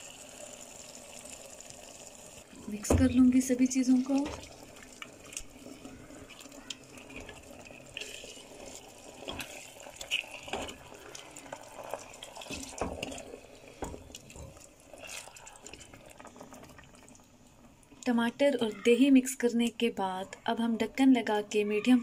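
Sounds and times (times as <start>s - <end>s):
wet stirring in a pot: 2.4s - 18.6s.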